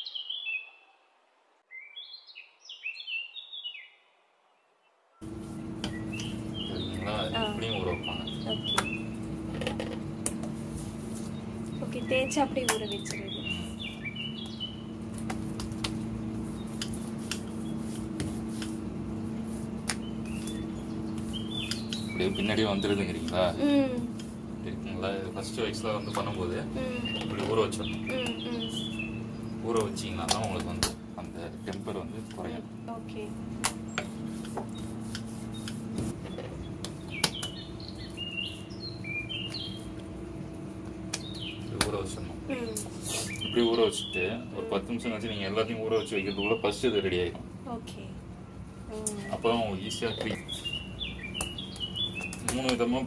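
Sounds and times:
birds chirping: 0.0s - 1.1s, 1.7s - 53.0s
hands working dough: 5.2s - 29.0s, 29.6s - 40.2s, 40.8s - 44.2s, 49.9s - 53.0s
steady low hum: 5.2s - 53.0s
hands pressing dough on stone: 16.7s - 18.8s
sharp taps: 29.8s - 31.0s.

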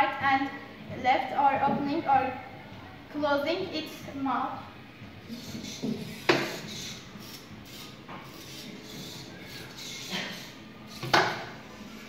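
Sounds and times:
servo motors whirring: 5.3s - 11.3s.

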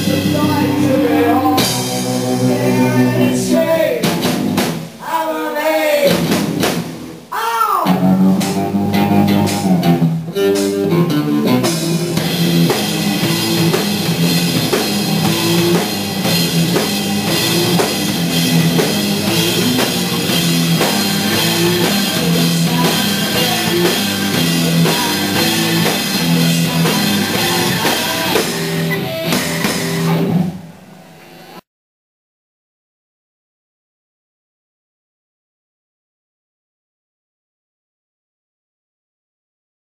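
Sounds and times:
guitar slide: 0.0s - 4.0s, 7.8s - 31.6s
rock band playing: 0.0s - 5.0s, 5.9s - 31.5s.

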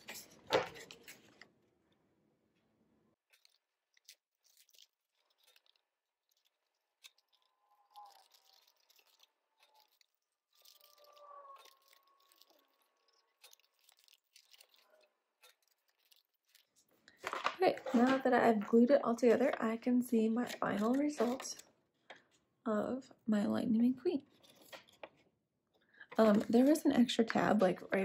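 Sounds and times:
card paper taps and rustles: 17.2s - 18.2s.

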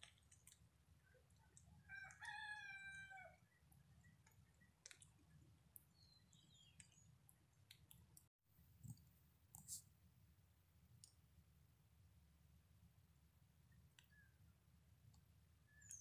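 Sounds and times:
small clicks: 0.0s - 2.3s, 4.0s - 9.8s.

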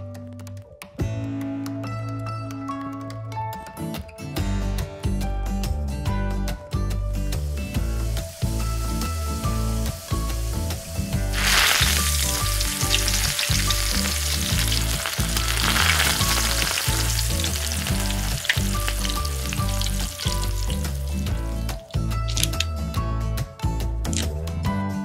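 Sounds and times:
background music with plucked melody: 0.0s - 25.0s
hot oil sizzling in a pan: 7.1s - 22.6s.

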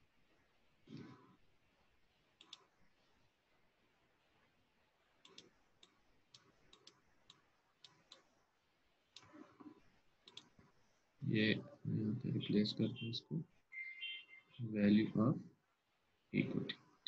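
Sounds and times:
faint computer mouse clicks: 2.4s - 2.7s, 5.2s - 8.3s, 9.1s - 9.4s, 10.2s - 10.6s.

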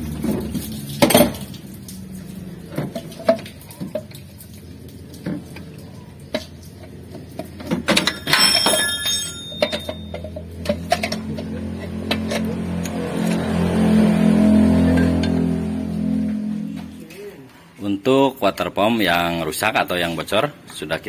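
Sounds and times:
metallic knocks and clinks: 7.4s - 11.5s.

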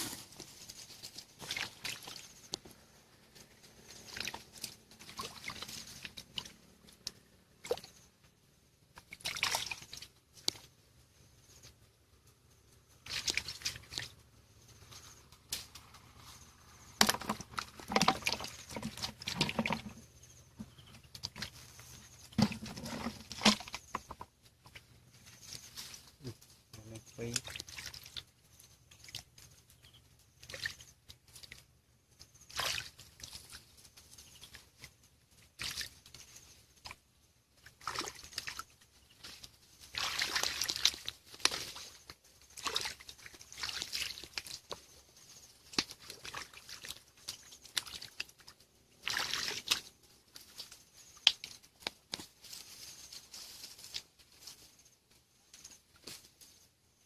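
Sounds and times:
hands splashing in muddy water: 1.4s - 2.5s, 4.0s - 6.5s, 9.0s - 10.6s, 13.0s - 14.1s, 32.5s - 33.6s, 37.6s - 44.8s, 45.6s - 49.9s.

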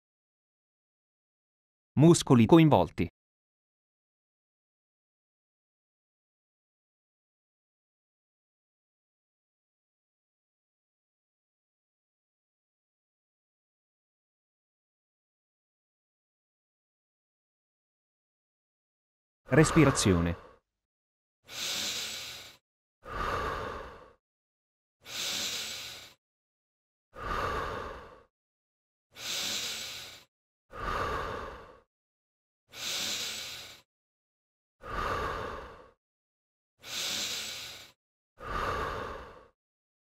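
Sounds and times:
person breathing slowly: 21.5s - 24.2s, 25.0s - 26.2s, 27.2s - 28.3s, 29.1s - 31.9s, 32.7s - 33.9s, 34.8s - 36.0s, 36.8s - 39.6s.

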